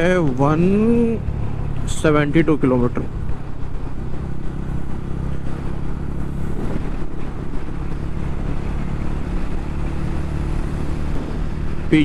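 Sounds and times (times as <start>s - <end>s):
motorcycle engine cruising: 0.0s - 12.0s
wind rushing over microphone: 0.0s - 12.0s.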